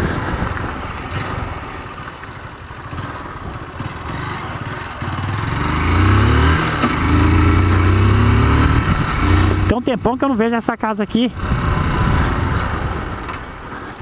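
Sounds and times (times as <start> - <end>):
motorcycle engine revving: 0.0 - 10.5, 11.2 - 13.9
wind rushing: 7.2 - 9.7, 11.4 - 13.7.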